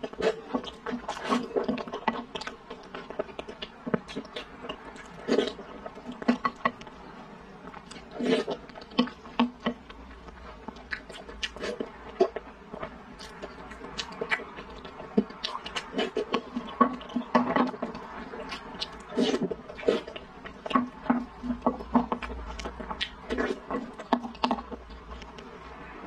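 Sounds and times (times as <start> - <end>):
wet chewing: 0.0 - 25.7
slurping: 3.4 - 6.6, 7.8 - 9.7, 13.2 - 24.8.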